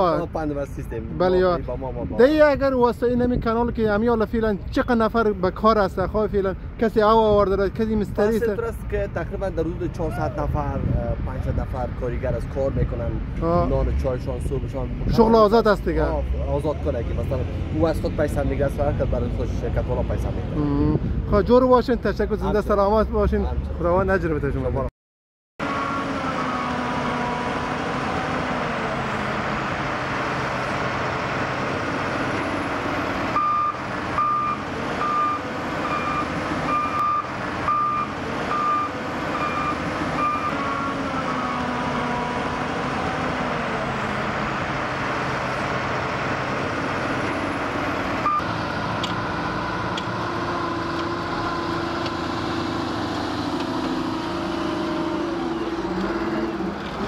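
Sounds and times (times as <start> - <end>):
diesel truck engines running: 0.0 - 24.8, 25.6 - 57.0
reversing alarm beeping: 33.4 - 41.7, 48.2 - 48.5.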